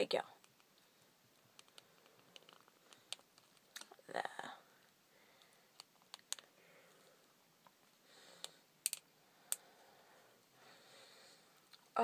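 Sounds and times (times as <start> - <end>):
plastic figure parts clicking: 1.6 - 4.0, 5.7 - 6.5, 8.4 - 9.6.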